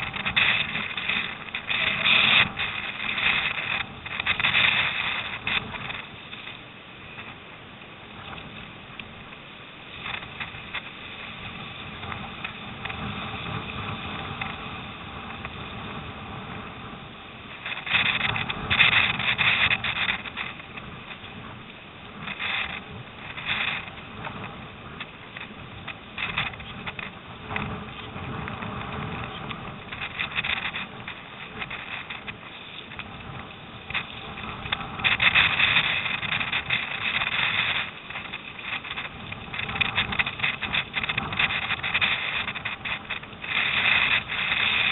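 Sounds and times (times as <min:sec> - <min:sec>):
water rushing along hull: 0:00.0 - 0:44.9
wind gusts on microphone: 0:00.0 - 0:44.9.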